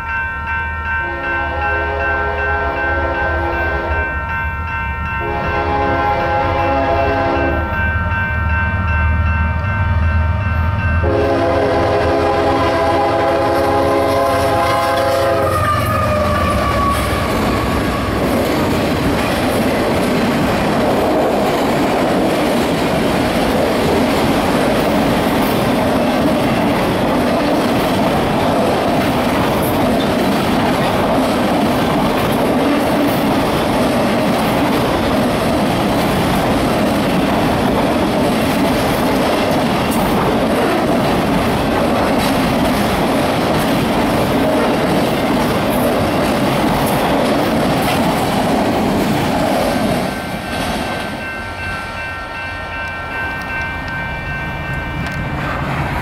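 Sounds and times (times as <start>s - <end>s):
train air horn blasts: 1.0s - 4.1s, 5.2s - 7.7s, 11.0s - 18.2s
locomotive engines rumbling: 10.3s - 56.0s
train wheels clattering: 11.1s - 52.2s.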